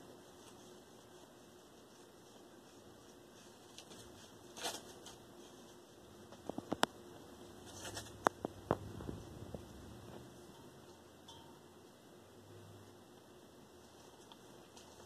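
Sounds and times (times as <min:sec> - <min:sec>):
paper rustling: 0:00.3 - 0:06.7, 0:07.6 - 0:08.2
cat tearing paper: 0:02.7 - 0:05.6.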